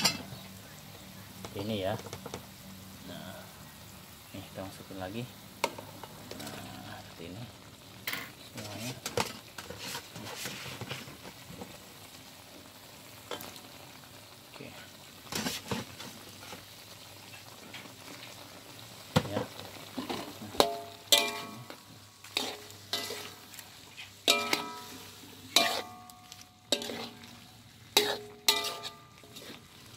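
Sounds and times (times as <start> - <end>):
broth sizzling: 0.0 - 29.9
metal spatula scraping a pot: 8.1 - 11.2, 15.3 - 16.6, 20.0 - 29.9.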